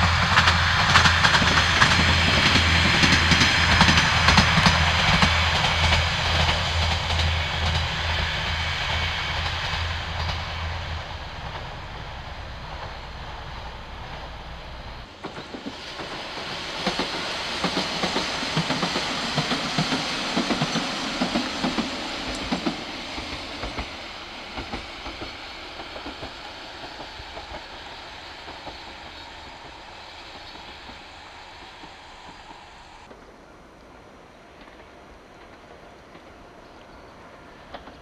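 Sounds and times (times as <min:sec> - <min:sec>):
diesel railcar passing: 0:00.0 - 0:38.0
wheels clicking over rail joints: 0:15.0 - 0:33.3, 0:34.5 - 0:38.0.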